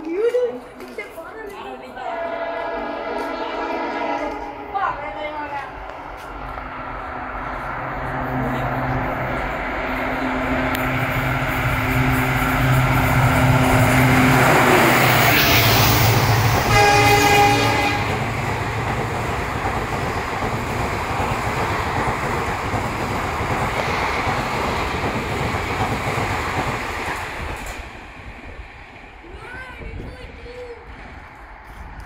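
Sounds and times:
train coaches rumbling past: 0:00.0 - 0:32.0
train locomotive engine passing: 0:00.0 - 0:32.0
train horn: 0:02.0 - 0:05.8, 0:16.6 - 0:18.4.

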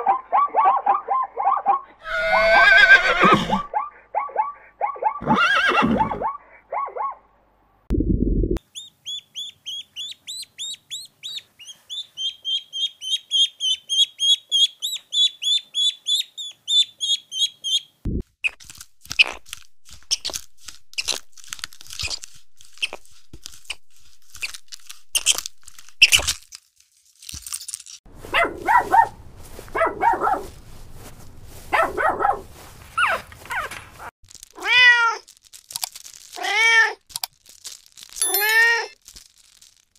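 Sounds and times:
squirrel clicks and calls: 0:08.6 - 0:26.4
ducklings peeping: 0:08.7 - 0:17.9.

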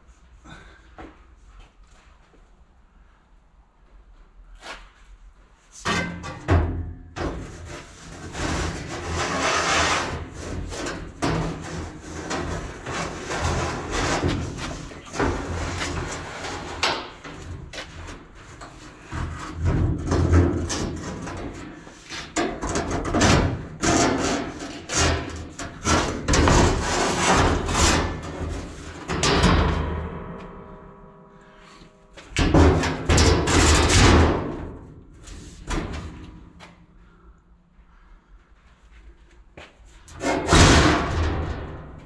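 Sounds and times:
steel panel knocking and scraping: 0:05.8 - 0:30.6, 0:32.3 - 0:34.7.

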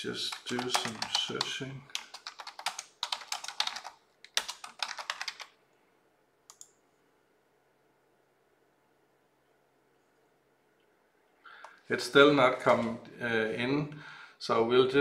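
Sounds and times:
rapid typing on keyboard: 0:00.2 - 0:05.6.

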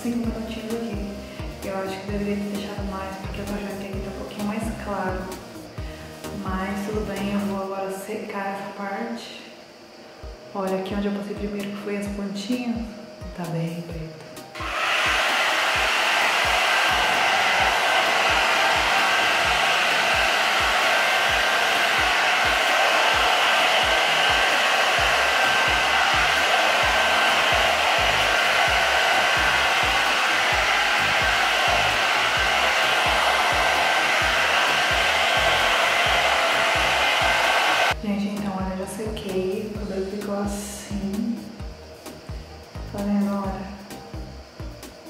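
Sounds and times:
hot-air brush blowing: 0:14.6 - 0:38.0.

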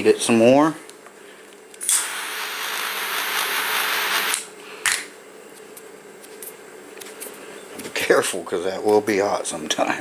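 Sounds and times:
lighter flame hissing: 0:01.8 - 0:04.5.

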